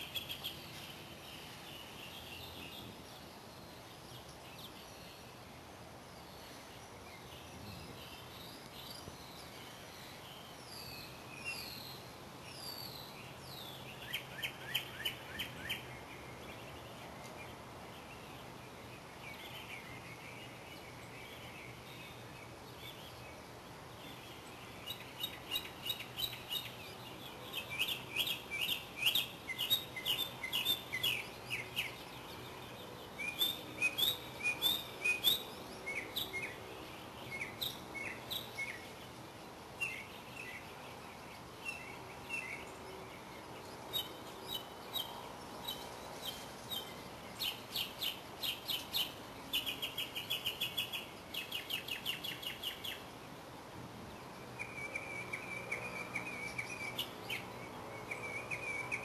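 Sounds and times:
small songbirds chirping: 0:00.0 - 0:59.0.

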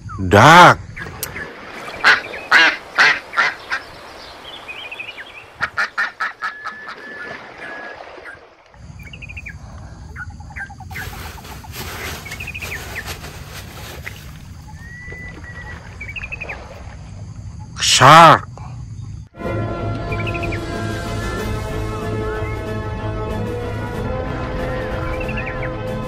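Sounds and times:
ducks quacking: 0:00.4 - 0:04.0, 0:05.4 - 0:07.4.

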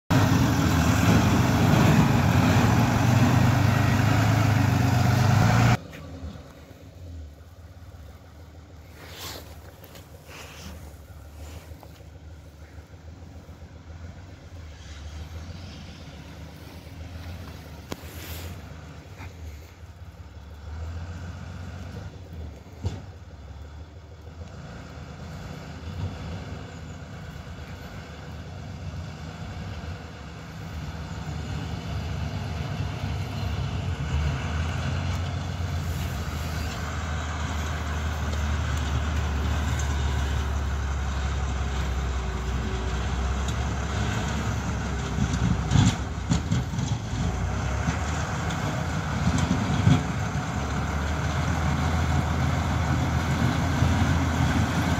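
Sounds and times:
tractor engine rumbling: 0:00.0 - 0:54.9.

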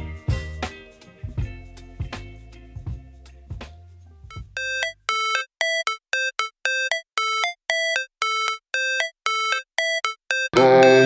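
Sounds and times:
electronic melody of clipped notes: 0:04.3 - 0:11.0.

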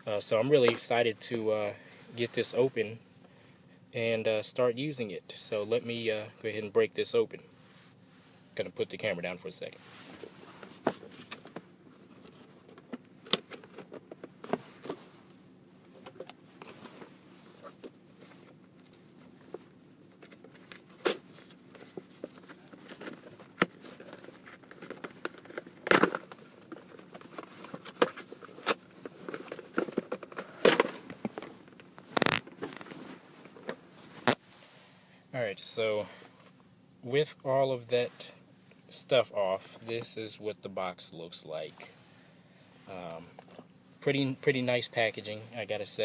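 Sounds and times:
plastic packaging crinkling and tearing: 0:32.0 - 0:33.0.

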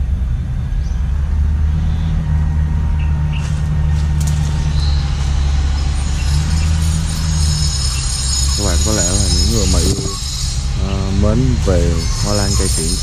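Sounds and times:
low rumble: 0:00.0 - 0:13.0
high chirps: 0:04.4 - 0:13.0.

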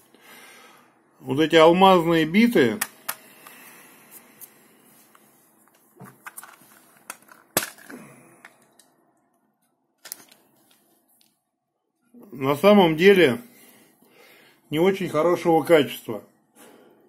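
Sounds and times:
plastic boxes clicking and knocking: 0:06.0 - 0:08.8.

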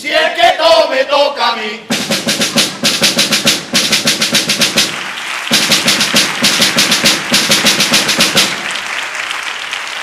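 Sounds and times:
snare drum strokes: 0:01.9 - 0:08.8.

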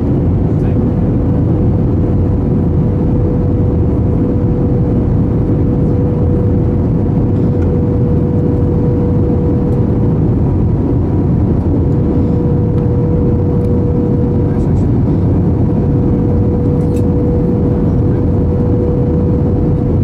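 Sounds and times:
airliner cabin roar: 0:00.0 - 0:20.0
constant mid-pitched hum: 0:00.0 - 0:20.0.

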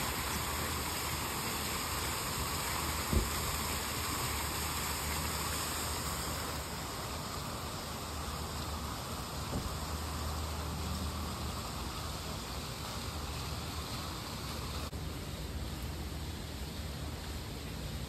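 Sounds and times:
fountain water splashing: 0:00.0 - 0:18.0
low thump: 0:03.1 - 0:03.4, 0:09.5 - 0:09.8.

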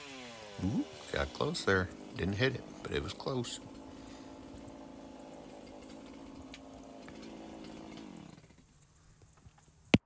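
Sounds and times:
chainsaw engine idling: 0:00.0 - 0:08.9.

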